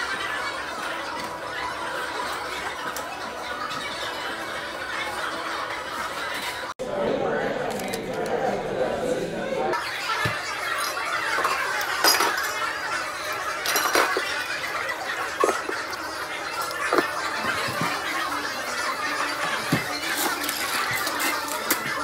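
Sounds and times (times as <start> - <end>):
bar background din: 0.0 - 22.0
glasses and bottles clinking: 10.7 - 14.7.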